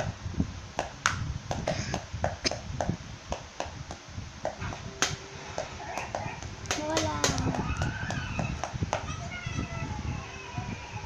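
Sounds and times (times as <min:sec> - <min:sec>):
sticks tapping on notebooks: 0:00.8 - 0:09.1
sticks tapping toy drum: 0:04.5 - 0:09.1.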